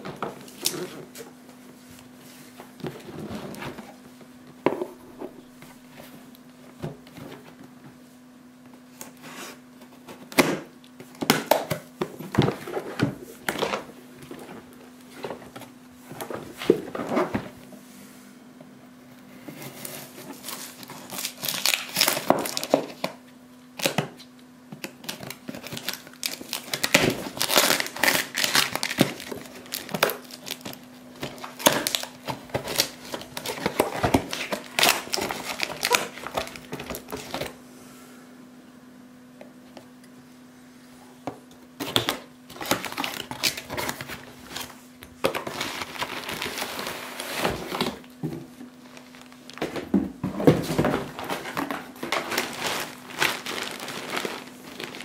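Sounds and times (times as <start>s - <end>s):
packaging crinkling and tearing: 19.6s - 23.2s, 24.8s - 37.6s, 41.8s - 48.2s, 48.8s - 55.0s.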